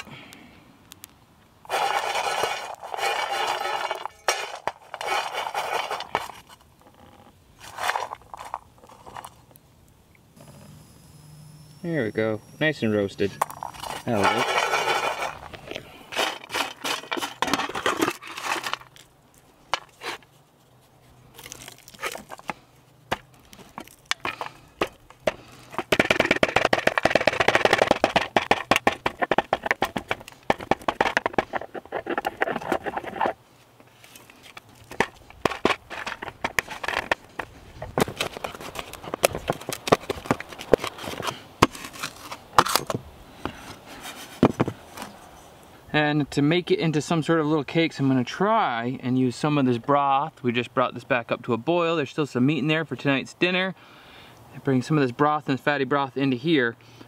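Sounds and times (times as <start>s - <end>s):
acorns cracking under pestle: 0.0s - 9.6s, 13.4s - 20.4s, 21.2s - 33.4s, 34.0s - 43.0s
stone grinding in metal pan: 1.7s - 6.3s, 13.5s - 18.8s, 24.2s - 33.4s.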